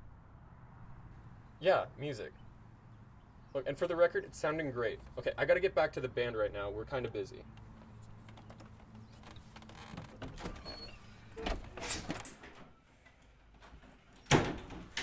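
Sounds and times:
door banging: 14.2 - 15.0.

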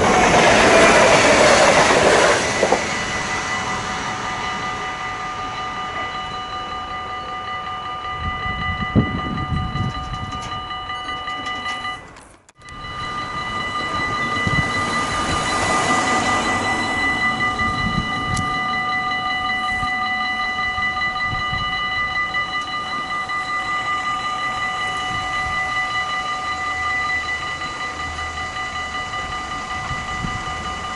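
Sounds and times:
level-crossing warning bell ringing: 0.0 - 30.9
car driving over crossing: 12.6 - 21.4.

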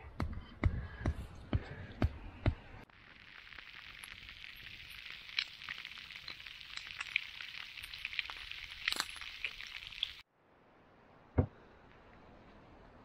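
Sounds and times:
sharp crackling pops: 2.8 - 10.2
meat sizzling in a frying pan: 3.0 - 10.2.

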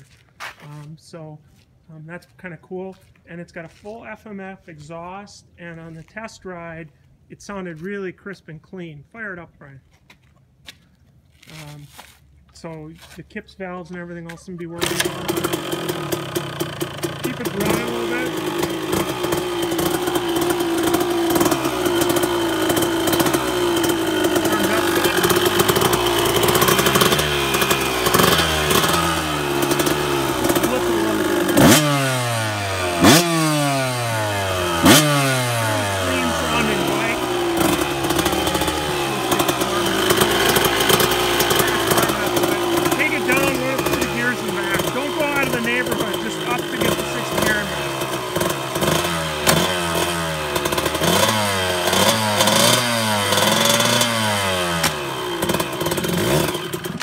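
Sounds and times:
two-stroke motorcycle engine revving: 14.8 - 57.0.

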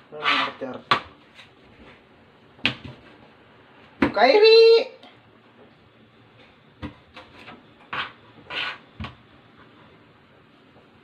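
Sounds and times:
knife cutting on plastic board: 7.2 - 9.2.

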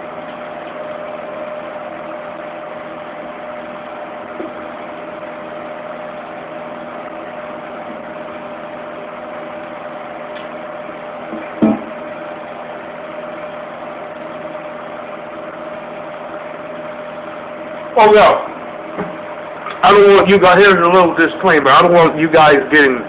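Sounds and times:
constant hum tone: 0.0 - 23.0
fan heater whirring: 0.0 - 23.0.

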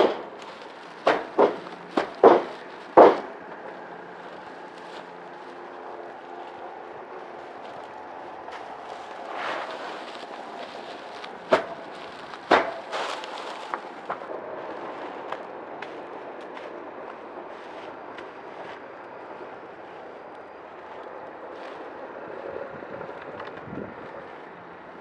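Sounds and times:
straw bundle thumping on wood: 0.0 - 3.4, 8.5 - 14.3
straw rustling: 0.0 - 22.6.

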